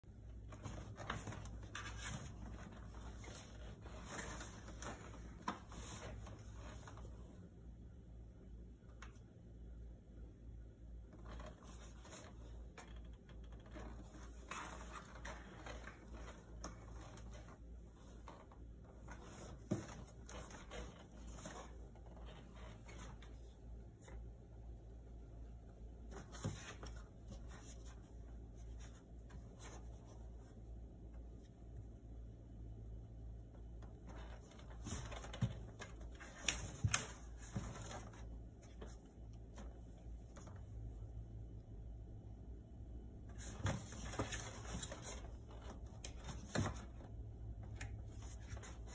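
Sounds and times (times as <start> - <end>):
low steady hum: 0.0 - 48.9
cats rustling on wooden floor: 0.4 - 7.4, 26.1 - 30.6, 33.8 - 40.7, 43.3 - 48.9.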